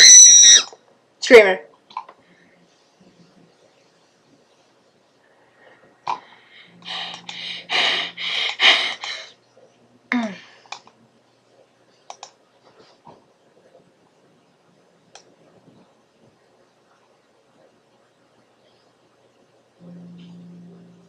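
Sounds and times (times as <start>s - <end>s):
sharp clicks: 12.1s - 12.4s.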